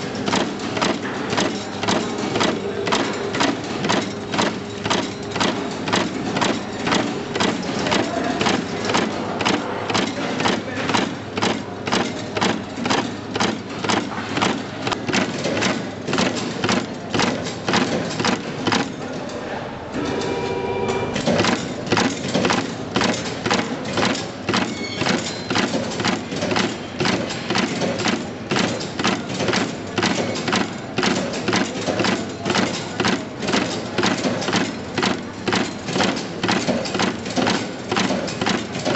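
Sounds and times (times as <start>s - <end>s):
brief steady tone: 20.0s - 21.2s.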